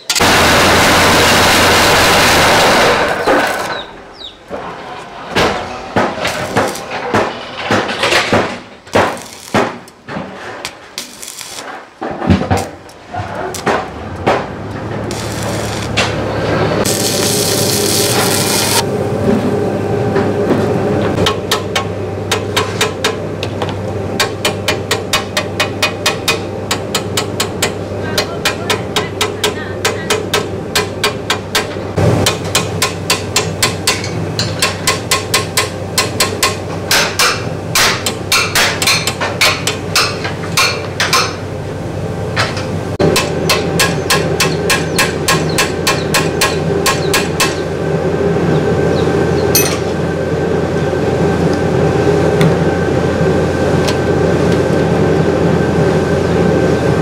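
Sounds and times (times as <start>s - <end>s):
hammer striking metal frame: 4.5s - 12.7s, 21.1s - 41.4s, 42.4s - 47.7s, 49.6s - 50.0s.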